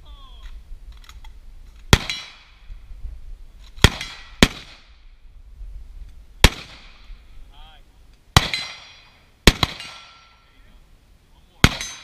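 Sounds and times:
gunshots with echo: 0:09.5 - 0:10.2, 0:11.6 - 0:12.0.

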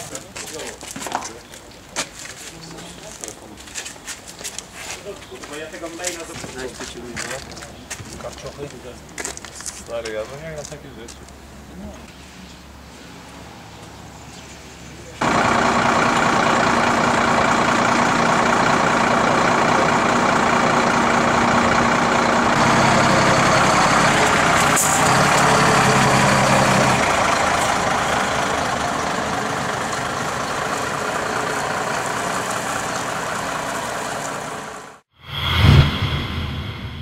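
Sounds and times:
diesel engine running: 0:15.2 - 0:35.1.

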